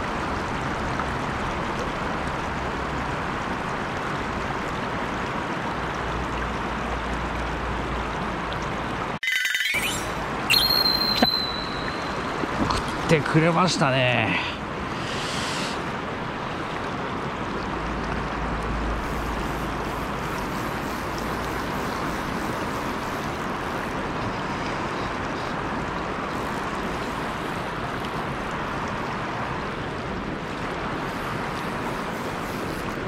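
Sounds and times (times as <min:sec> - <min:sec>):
river water rushing over riffle: 0:10.0 - 0:33.0.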